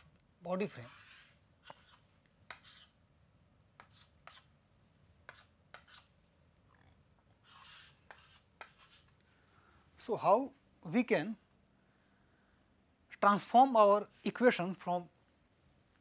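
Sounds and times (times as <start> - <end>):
chalk tapping and scraping on chalkboard: 0.6 - 3.0, 3.8 - 4.6, 5.2 - 6.2, 7.4 - 9.2.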